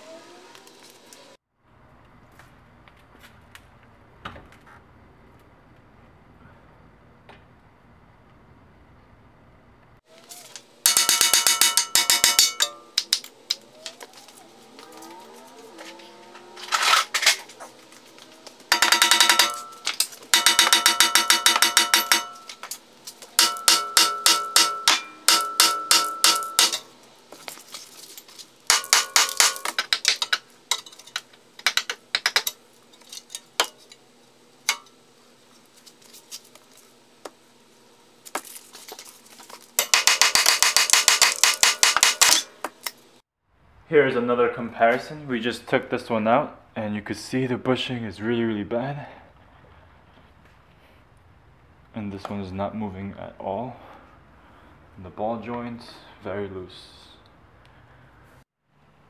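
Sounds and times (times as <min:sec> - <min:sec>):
hammer striking metal: 0:10.8 - 0:13.3, 0:18.7 - 0:22.8, 0:23.4 - 0:26.9, 0:28.7 - 0:31.0, 0:34.7 - 0:34.9, 0:39.8 - 0:42.9.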